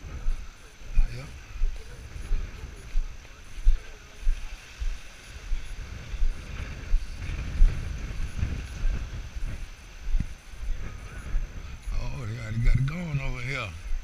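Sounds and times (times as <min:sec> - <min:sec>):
wind buffeting microphone: 0:00.0 - 0:14.0
dull walking thumps: 0:01.6 - 0:12.0.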